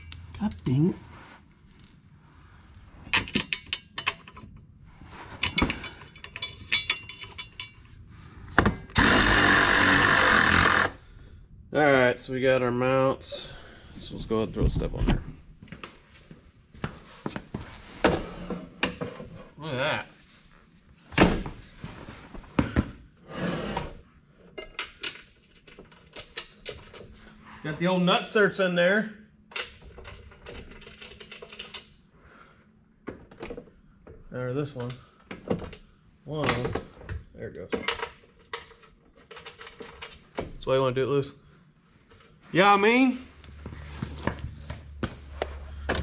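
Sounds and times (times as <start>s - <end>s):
metallic clinks and rattles: 5.4s - 8.0s
impact wrench running: 8.9s - 11.0s.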